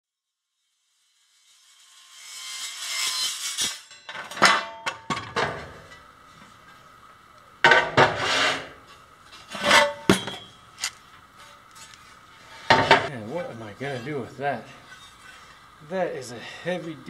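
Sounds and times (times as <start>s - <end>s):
metal scraping on concrete: 1.1s - 6.8s, 7.7s - 15.6s.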